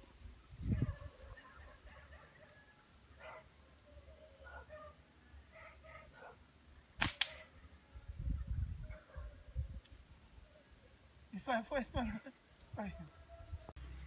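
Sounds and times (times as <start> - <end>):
sharp cracks: 7.0 - 7.5.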